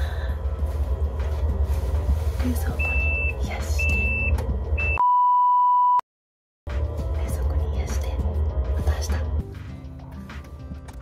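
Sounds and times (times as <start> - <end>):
low hum: 0.0 - 5.1
lower-pitched bleep tone: 2.8 - 6.0
refrigerator alarm beeping: 2.8 - 6.0.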